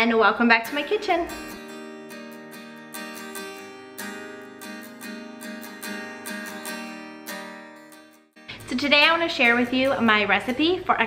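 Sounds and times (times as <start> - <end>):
strummed acoustic guitar music: 0.4 - 11.0.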